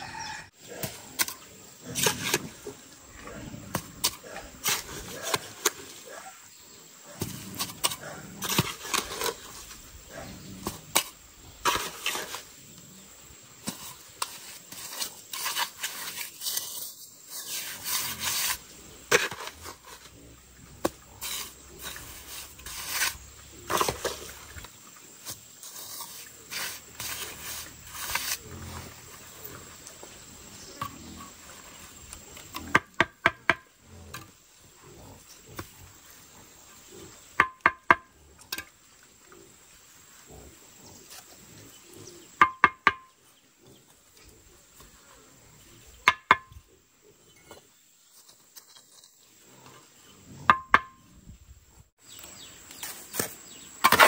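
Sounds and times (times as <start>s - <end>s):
trowel scraping wet mortar: 0.7s - 2.9s, 3.5s - 6.2s, 7.1s - 12.6s, 13.6s - 29.4s, 52.7s - 54.0s.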